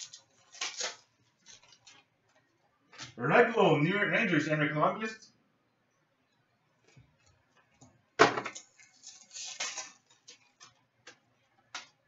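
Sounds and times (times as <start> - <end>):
foil wrapper crackling: 0.0 - 3.2, 8.5 - 11.0.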